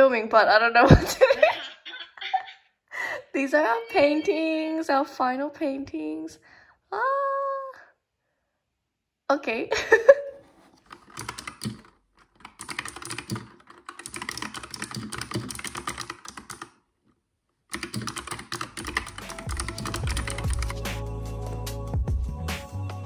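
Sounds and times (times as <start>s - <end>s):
fast typing on keyboard: 10.7s - 16.8s, 17.7s - 20.9s
background music: 18.6s - 23.0s.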